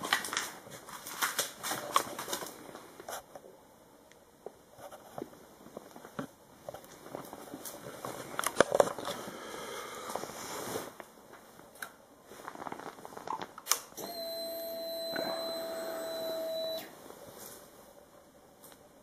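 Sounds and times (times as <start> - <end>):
rustling: 4.7 - 9.4, 10.1 - 13.6, 16.9 - 18.0
fuel pump whine: 14.0 - 16.9.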